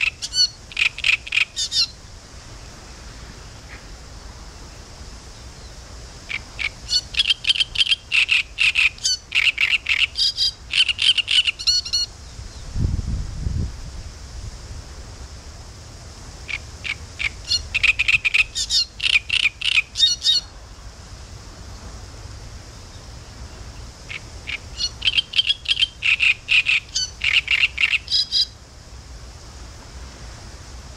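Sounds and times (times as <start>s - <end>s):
warbler singing: 0.0s - 2.0s, 4.6s - 12.8s, 17.2s - 20.5s, 22.7s - 28.6s.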